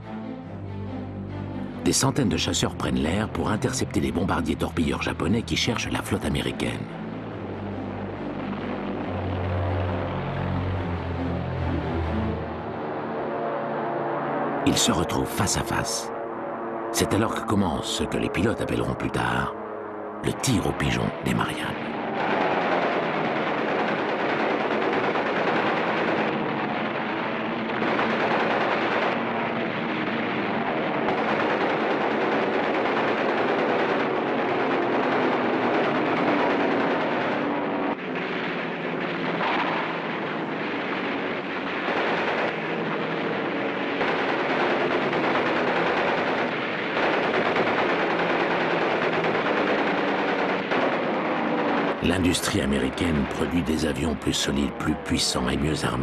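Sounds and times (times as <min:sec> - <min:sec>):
propeller planes droning: 0:00.0 - 0:56.0
machine-gun fire: 0:21.6 - 0:55.0.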